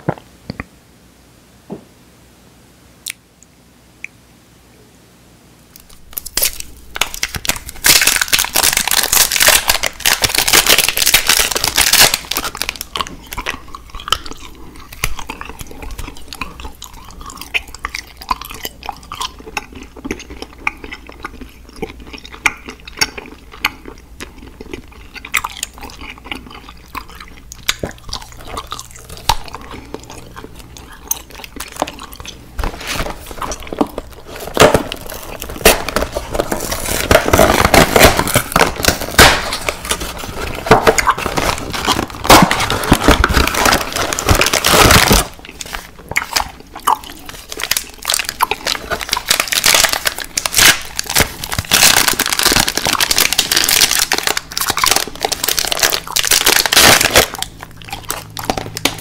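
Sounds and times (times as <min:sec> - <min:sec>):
candy crunching: 0:05.7 - 0:59.0
soft chewing with clicks: 0:12.8 - 0:32.5.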